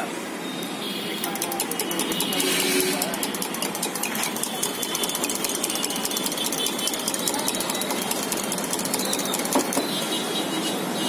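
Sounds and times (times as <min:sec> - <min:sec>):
steady noisy background: 0:00.0 - 0:11.0
small engine chattering: 0:01.2 - 0:10.1.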